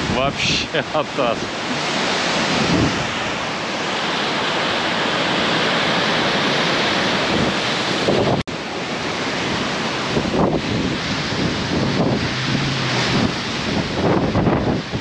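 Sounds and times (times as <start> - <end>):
strong wind gusting: 0.0 - 15.0
wind buffeting microphone: 1.4 - 4.2, 7.0 - 15.0.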